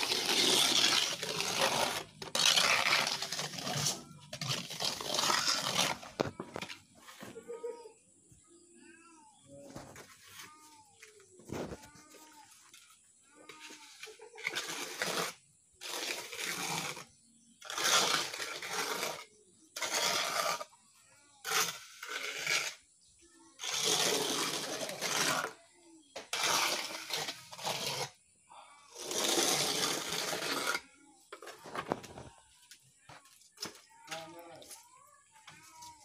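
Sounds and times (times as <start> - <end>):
trowel scraping wet mortar: 0.0 - 6.8, 12.7 - 28.3, 28.9 - 32.3.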